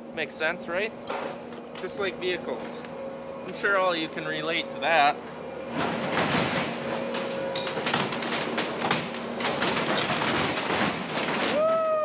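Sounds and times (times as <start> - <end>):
machine engine running: 0.0 - 11.6
sheet metal and wood crashing: 5.8 - 11.6.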